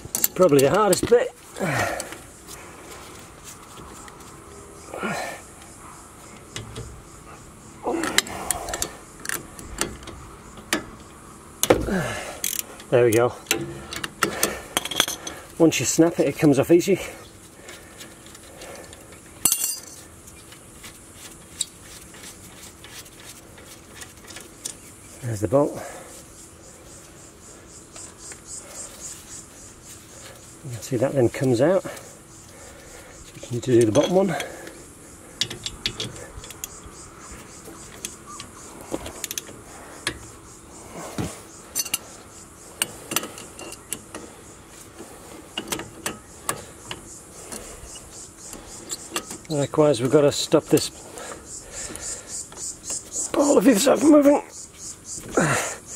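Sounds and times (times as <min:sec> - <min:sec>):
spanner clinking on metal bolt: 0:00.0 - 0:01.2, 0:12.4 - 0:15.4, 0:19.4 - 0:20.0, 0:33.4 - 0:34.8, 0:35.4 - 0:36.8, 0:41.7 - 0:42.1, 0:42.8 - 0:44.3, 0:45.5 - 0:50.9
metal tool clinks: 0:19.4 - 0:20.0.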